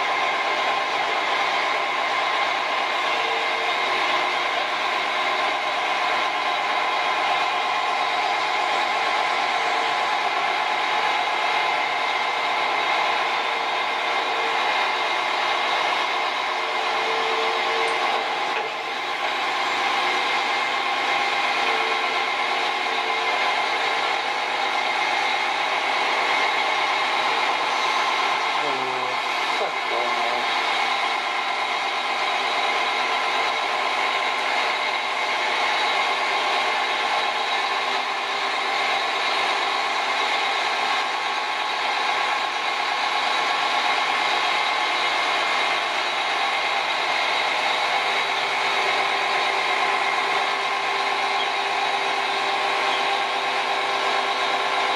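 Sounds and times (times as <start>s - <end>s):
crane diesel engine running: 0.0s - 54.9s.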